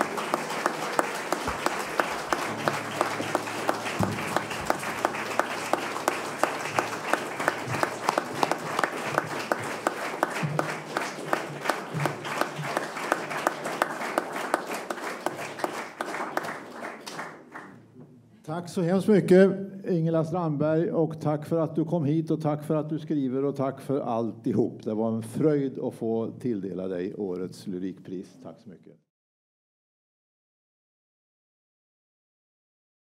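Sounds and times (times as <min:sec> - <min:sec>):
audience applauding: 0:00.0 - 0:17.8.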